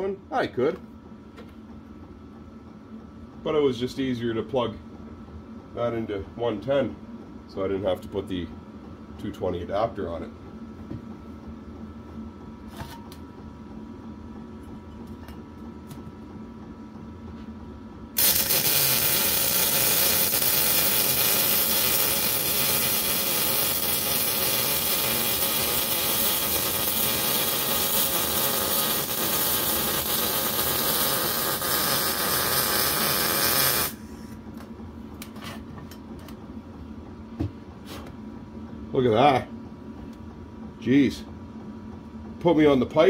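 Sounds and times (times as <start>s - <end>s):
arc welding harsh hiss: 18.2s - 34.0s.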